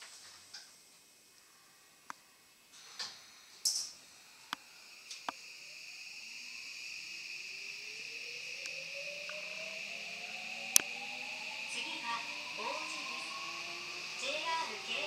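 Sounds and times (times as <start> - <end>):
short hiss: 2.7 - 5.5
train motor whine rising: 2.8 - 15.0
high inverter tone: 4.5 - 15.0.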